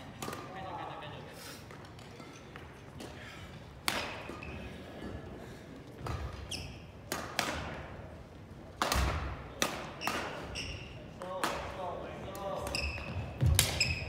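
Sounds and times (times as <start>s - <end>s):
rackets striking shuttlecocks: 3.8s - 4.4s, 6.0s - 7.9s, 8.7s - 10.6s, 11.2s - 14.0s
sneaker squeak: 4.0s - 4.8s, 6.0s - 7.0s, 10.0s - 11.0s, 12.6s - 14.0s.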